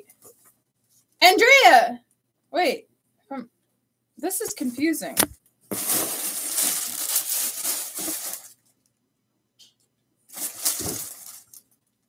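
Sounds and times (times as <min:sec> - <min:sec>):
plastic bag rustling: 0:04.6 - 0:08.7, 0:10.3 - 0:11.8.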